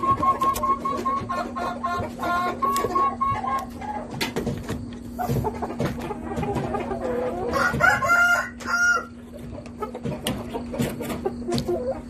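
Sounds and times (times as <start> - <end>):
rooster crowing: 7.3 - 9.2.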